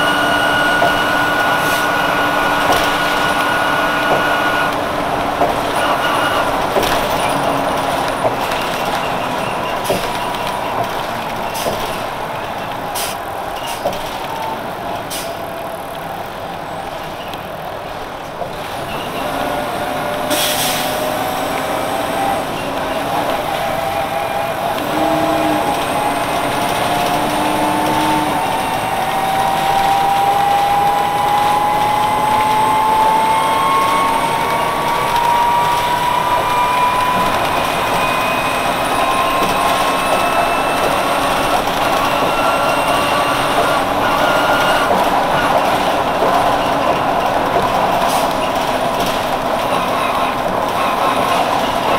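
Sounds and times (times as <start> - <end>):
rising engine whine: 0.0 - 9.6, 19.1 - 50.0
bus engine running: 0.0 - 51.9
air brake hiss: 20.3 - 21.0.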